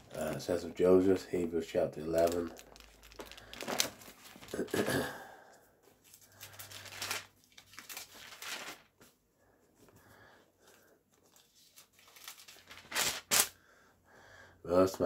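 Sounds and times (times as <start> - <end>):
book pages rustling: 2.1 - 4.7, 5.8 - 9.2, 9.8 - 13.5.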